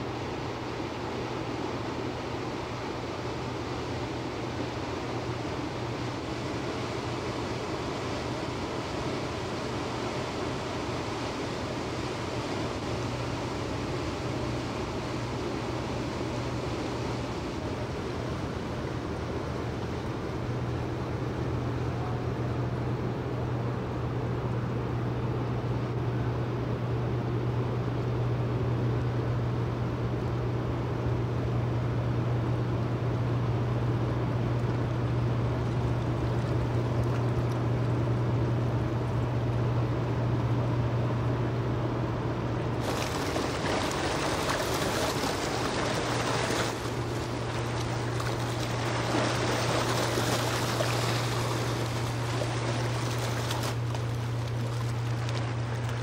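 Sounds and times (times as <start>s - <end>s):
water rushing from ship wake: 0.0s - 41.2s, 41.8s - 56.0s
ship engine humming: 30.6s - 56.0s.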